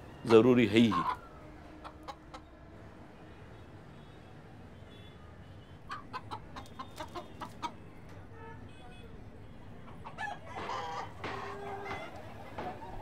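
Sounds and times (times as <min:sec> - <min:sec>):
rooster clucking: 0:00.2 - 0:02.5, 0:05.9 - 0:07.9, 0:09.9 - 0:13.0.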